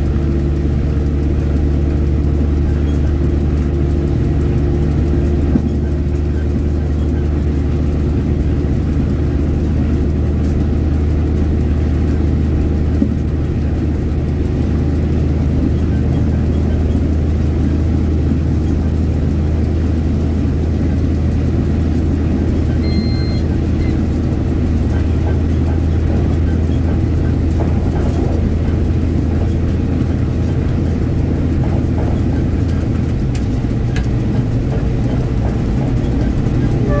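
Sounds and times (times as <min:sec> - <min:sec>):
diesel train engine drone: 0:00.0 - 0:37.0
short high beep: 0:22.8 - 0:24.0.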